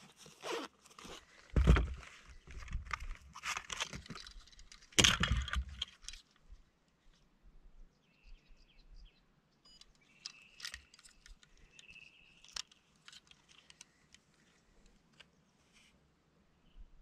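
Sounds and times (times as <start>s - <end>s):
fish scale clicks and rattles: 10.2s - 14.2s.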